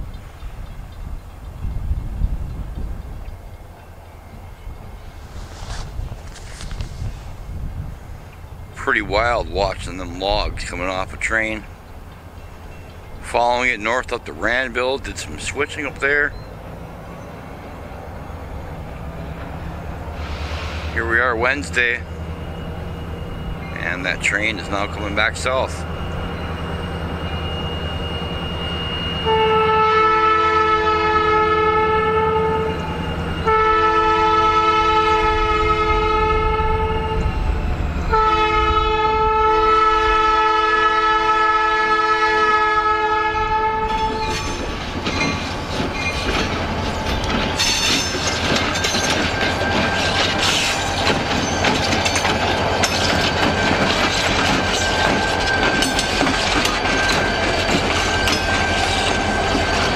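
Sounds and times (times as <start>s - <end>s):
diesel locomotive engine running: 0.0s - 59.9s
locomotive air horn blasts: 27.5s - 37.4s, 38.0s - 44.4s
wheels clicking over rail joints: 44.0s - 59.9s.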